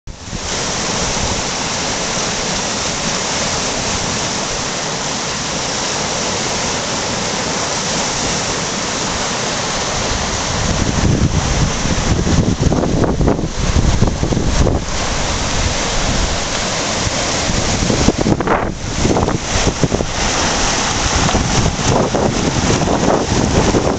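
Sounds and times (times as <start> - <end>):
creek water rushing: 0.1 - 23.9
wind buffeting microphone: 9.8 - 23.9.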